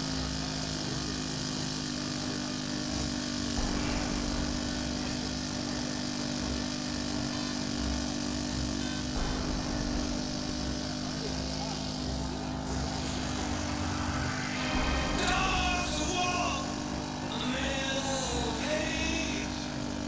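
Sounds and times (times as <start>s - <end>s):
engine humming: 2.9s - 20.0s.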